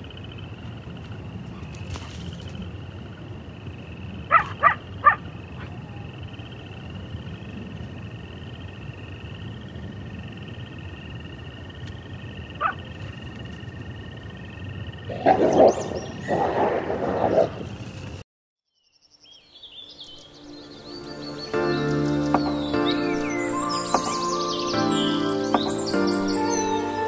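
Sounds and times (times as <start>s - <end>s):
faint chirping: 18.7s - 27.0s
lower animal calls: 21.2s - 27.0s
wavering high trill: 21.5s - 27.0s.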